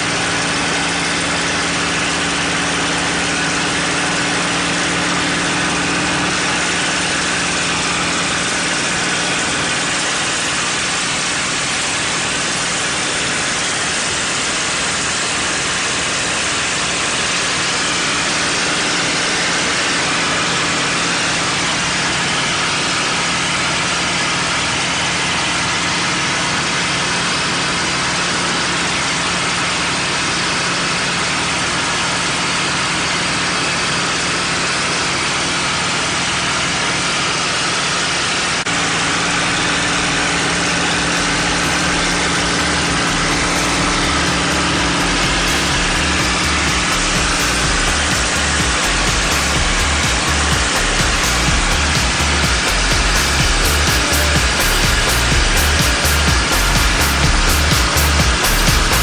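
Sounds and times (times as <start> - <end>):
airplane engine humming: 0.0 - 22.4, 38.6 - 59.0
loud rush of airflow: 0.0 - 25.3, 38.6 - 59.0.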